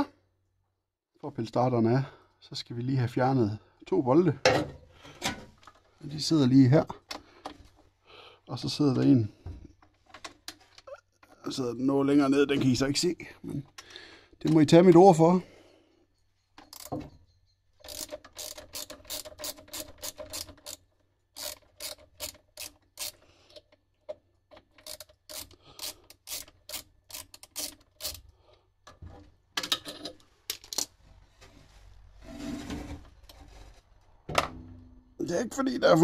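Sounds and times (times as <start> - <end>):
tool handling noise: 4.4 - 5.9, 16.5 - 20.8
socket ratchet clicking: 16.7 - 17.0, 17.8 - 20.8, 21.4 - 23.2, 24.7 - 28.3.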